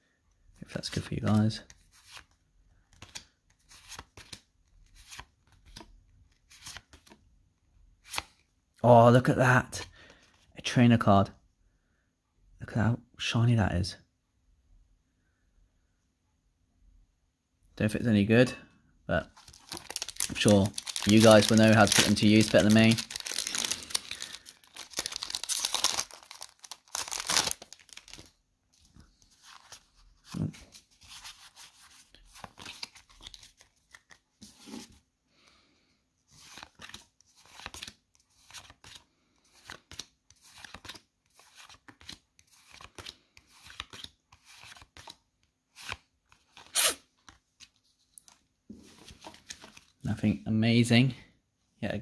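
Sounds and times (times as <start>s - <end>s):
cards rustling and clicking: 0.8s - 7.2s, 19.3s - 35.0s, 36.3s - 50.0s
foil wrapper tearing and crinkling: 19.4s - 28.3s.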